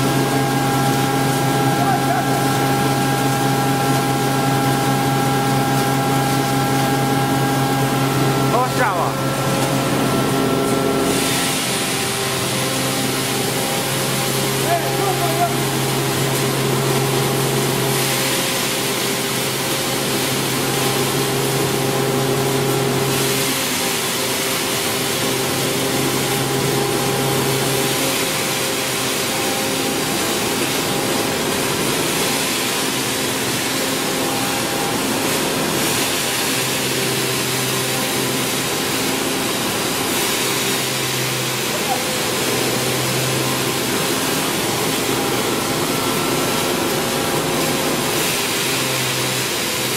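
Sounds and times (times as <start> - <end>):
motor and fan hum: 0.0 - 49.9
rushing hiss of material: 11.0 - 14.0.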